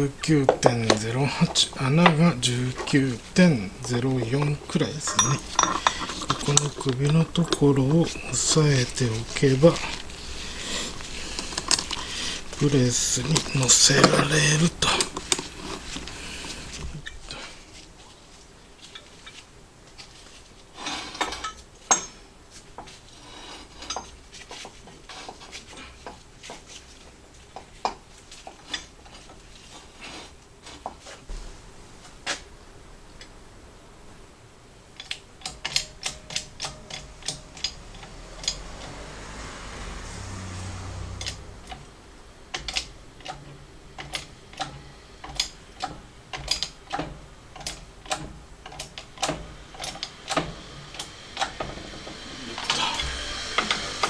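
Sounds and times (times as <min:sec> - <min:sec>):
metal parts clinking and knocking: 0:03.8 - 0:10.1, 0:21.1 - 0:22.2, 0:23.8 - 0:24.2, 0:42.5 - 0:50.5.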